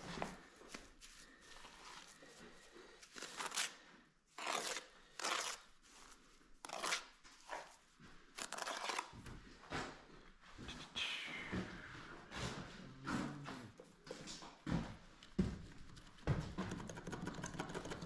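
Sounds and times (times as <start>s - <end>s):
trowel scraping mortar: 4.4s - 5.7s, 6.6s - 7.8s, 8.4s - 9.2s.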